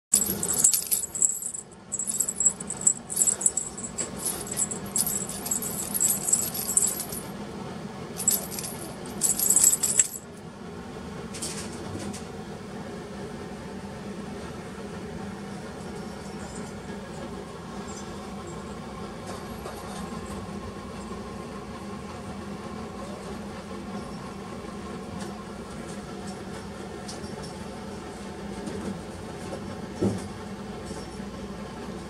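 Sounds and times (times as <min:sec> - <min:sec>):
cat toy bell jingling: 0:00.2 - 0:07.3, 0:08.2 - 0:10.2.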